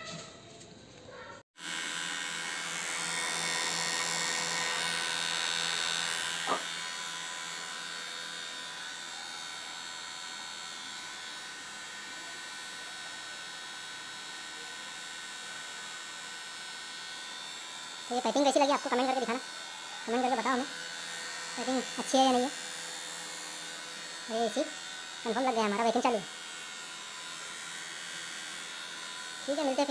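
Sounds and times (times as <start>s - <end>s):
vacuum pump humming: 1.6s - 11.3s.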